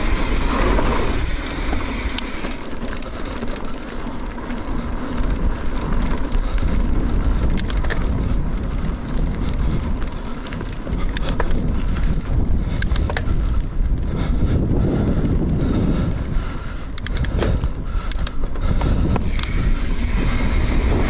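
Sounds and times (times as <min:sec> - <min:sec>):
wind on microphone: 0:00.0 - 0:02.6, 0:04.7 - 0:21.0
bike tyres rolling on dirt: 0:00.0 - 0:21.0
sharp clicks and rattles: 0:05.2 - 0:13.6, 0:16.9 - 0:21.0.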